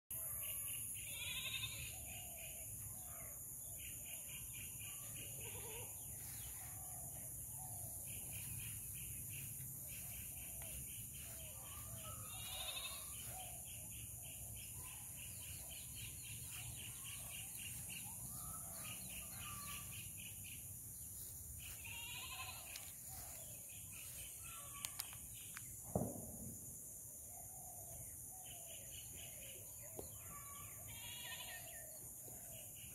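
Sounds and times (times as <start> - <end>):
high insect drone: 0.6 - 3.2, 7.1 - 26.9
short bird calls: 9.3 - 15.0
sharp clicks: 24.8 - 25.7.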